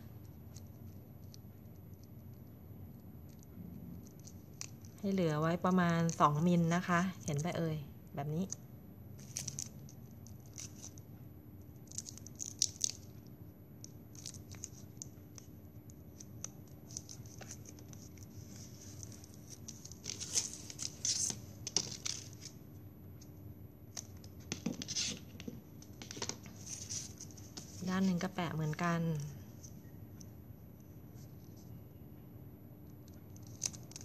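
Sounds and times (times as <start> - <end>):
tape rustling and crinkling: 0.2 - 7.5, 9.2 - 28.3, 33.0 - 34.0.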